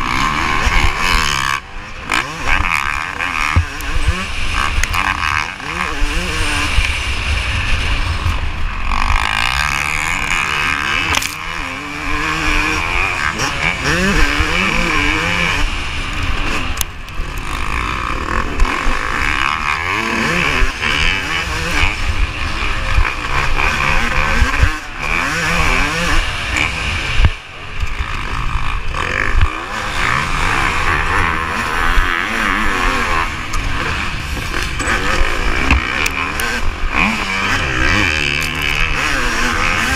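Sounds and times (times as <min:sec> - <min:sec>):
motocross bike engine revving: 0:00.0 - 0:39.9
wind rush on microphone: 0:03.5 - 0:17.5.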